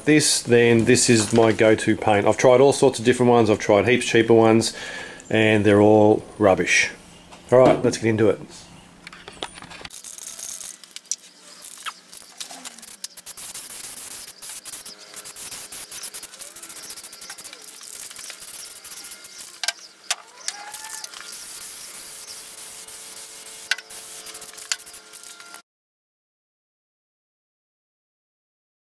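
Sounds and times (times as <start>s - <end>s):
aerosol spray can hissing: 9.9s - 25.5s
sharp clicks: 10.9s - 21.8s, 23.6s - 25.4s.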